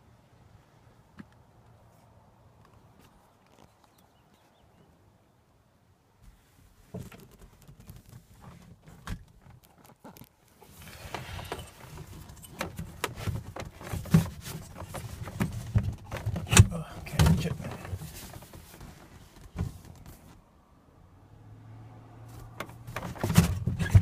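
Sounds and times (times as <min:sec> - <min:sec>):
rustling: 0:06.2 - 0:20.4
seat handle clicks and clunks: 0:10.9 - 0:20.2, 0:22.5 - 0:24.0.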